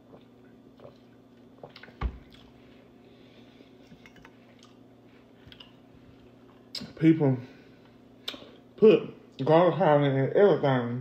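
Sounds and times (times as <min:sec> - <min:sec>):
soft sipping and mouth noises: 0:00.0 - 0:03.0.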